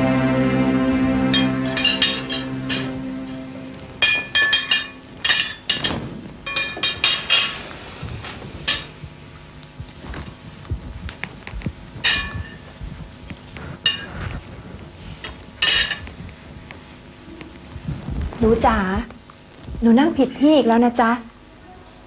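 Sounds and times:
cutlery clinking on plates: 0:04.0 - 0:07.8, 0:12.0 - 0:12.6, 0:15.3 - 0:16.1.

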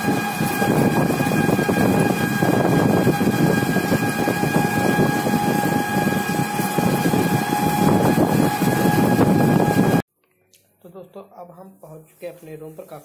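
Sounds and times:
constant high whine: 0:00.0 - 0:10.0.

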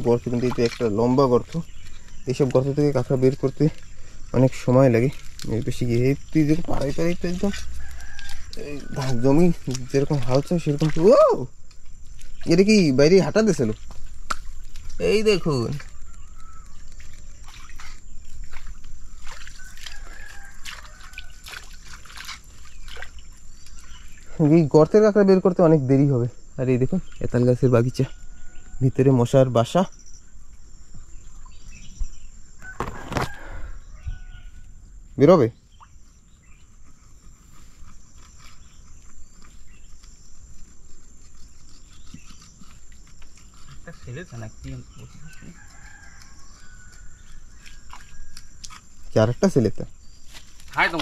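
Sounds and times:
muddy water sloshing and splashing: 0:00.0 - 0:25.4.

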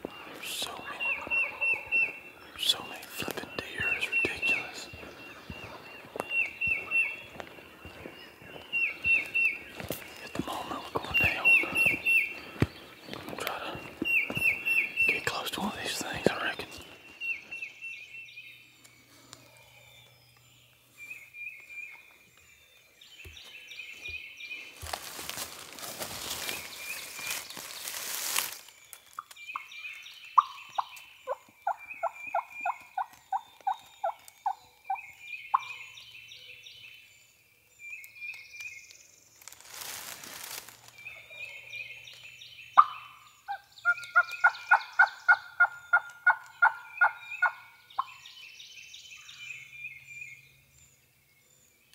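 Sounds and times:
songbirds chirping: 0:00.0 - 0:51.9
wild turkey yelping: 0:01.0 - 0:02.2, 0:42.8 - 0:48.1.

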